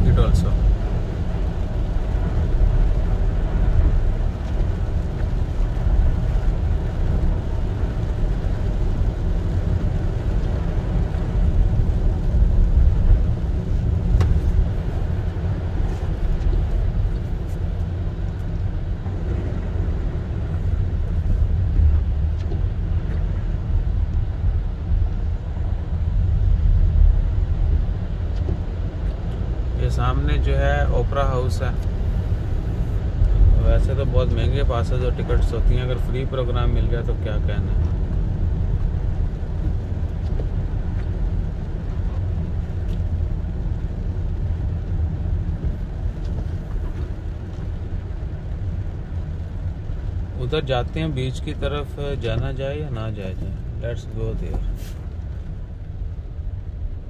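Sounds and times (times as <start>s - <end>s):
engine and tyre rumble: 0.0s - 57.0s
tyres hissing on wet road: 29.6s - 57.0s.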